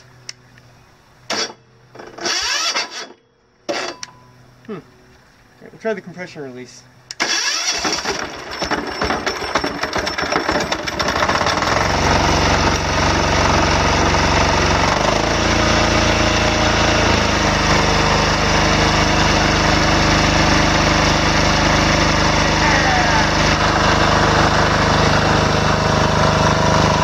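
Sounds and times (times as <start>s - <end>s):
electric starter cranking engine: 1.3s - 4.1s, 7.1s - 27.0s
diesel engine running: 6.6s - 27.0s.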